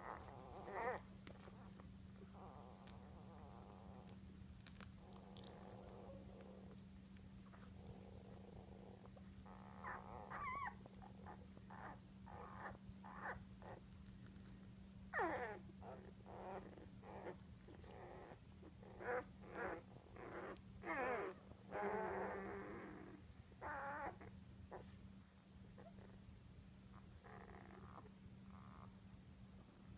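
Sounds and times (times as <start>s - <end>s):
puppies squeaking and whining: 0.0s - 1.7s, 9.5s - 13.8s, 15.2s - 22.8s.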